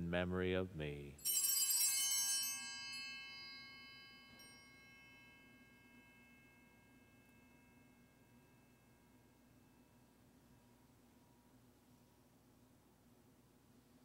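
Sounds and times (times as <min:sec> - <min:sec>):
altar bell ringing: 0:01.2 - 0:10.1.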